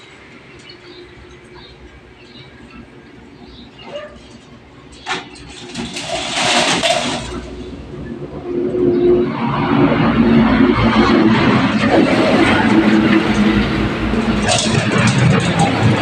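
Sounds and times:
chain-link mesh rattling: 5.0 - 7.6, 13.4 - 16.0.

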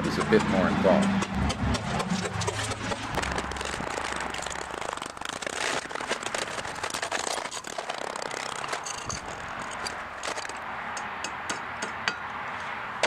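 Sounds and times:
sand mold cracking and crunching: 2.5 - 10.6.

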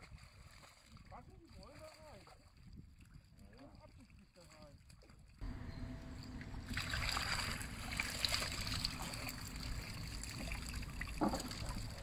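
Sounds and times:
water splashing and dripping: 6.2 - 12.0.

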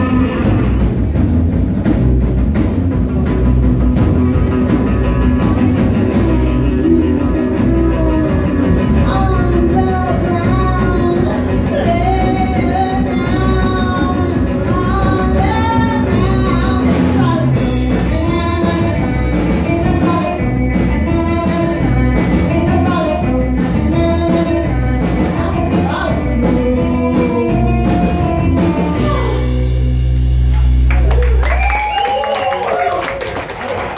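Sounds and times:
live rock band playing: 0.0 - 33.9
woman singing: 5.8 - 29.7.

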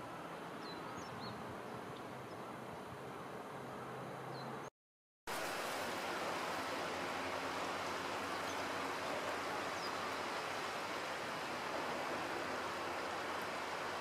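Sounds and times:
river rushing over stones: 5.3 - 14.0.

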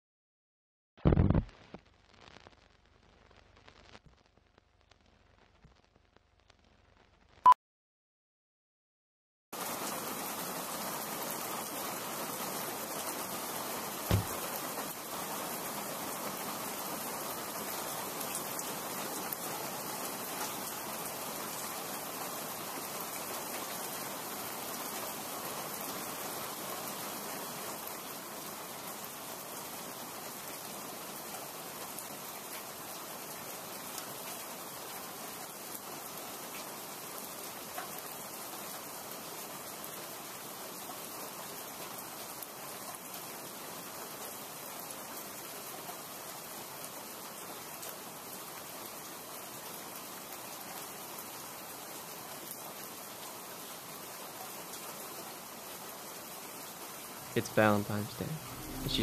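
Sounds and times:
steady rain falling: 1.1 - 7.4, 9.6 - 59.0
low thump: 14.1 - 14.4.

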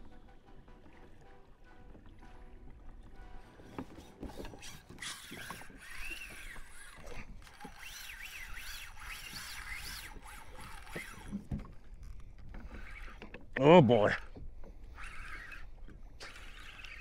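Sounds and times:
reel whine: 0.0 - 17.0
fishing reel drag clicking: 3.7 - 13.5, 14.2 - 17.0.

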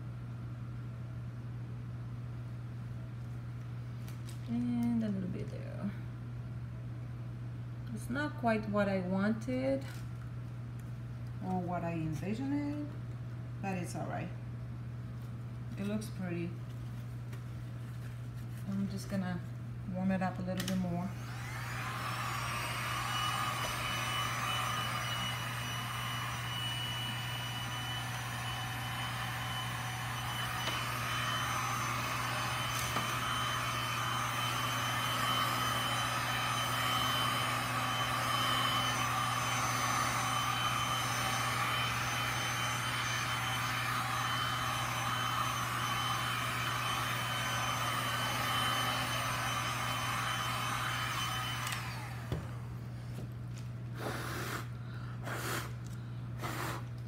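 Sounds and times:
heat gun blowing air: 21.2 - 52.5, 54.0 - 55.8, 56.4 - 56.9.

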